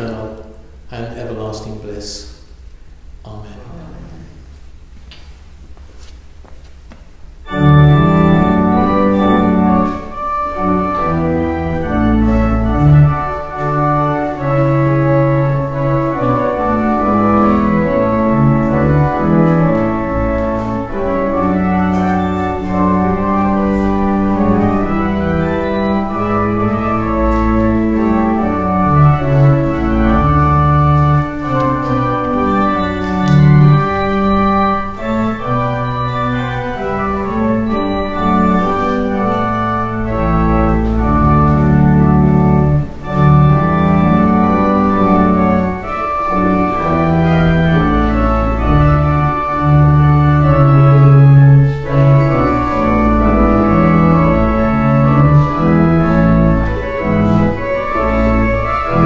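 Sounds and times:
organ playing sustained chords: 0.0 - 6.1, 7.1 - 59.0.

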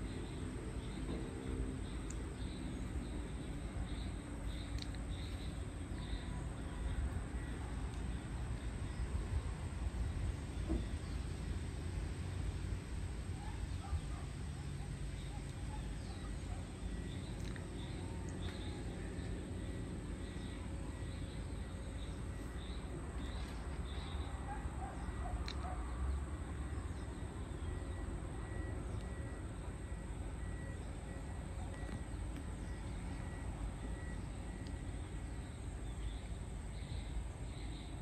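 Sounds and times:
bird chirps: 0.0 - 9.2, 13.4 - 25.9.

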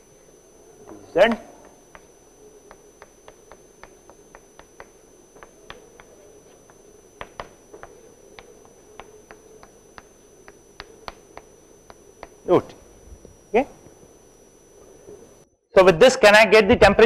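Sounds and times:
chalk tapping on a blackboard: 1.6 - 6.6, 7.2 - 11.5.

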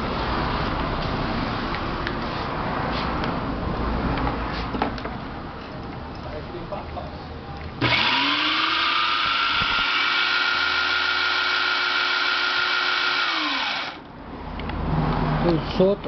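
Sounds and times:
food processor motor whine: 7.8 - 14.0.

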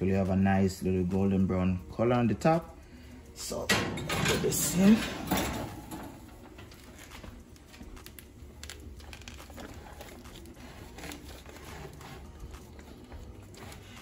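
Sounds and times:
aluminium foil pan crinkling: 6.5 - 14.0.

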